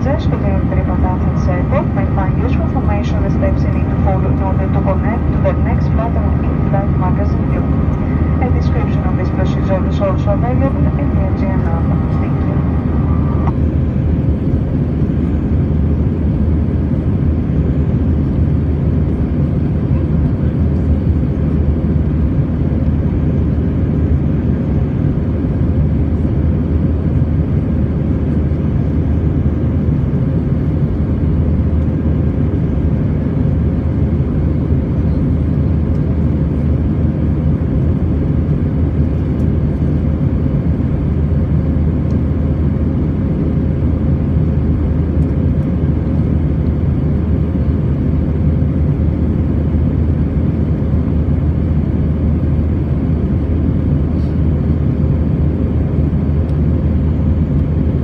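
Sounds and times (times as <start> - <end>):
faint steady hum: 0.0 - 16.5
airliner cabin engine rumble: 0.0 - 58.0.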